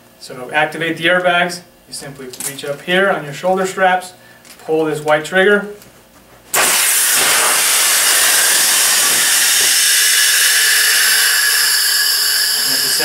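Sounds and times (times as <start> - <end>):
airbag inflating with loud hiss: 6.5 - 13.0.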